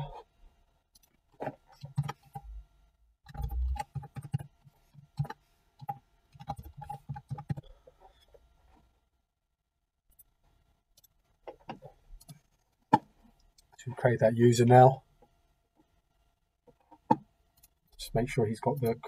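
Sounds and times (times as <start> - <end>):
keyboard typing: 1.7 - 2.4, 3.3 - 7.7.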